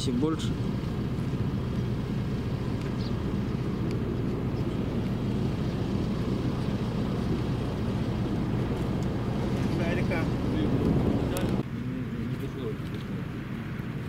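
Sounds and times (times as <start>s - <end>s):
low engine drone: 0.0s - 14.0s.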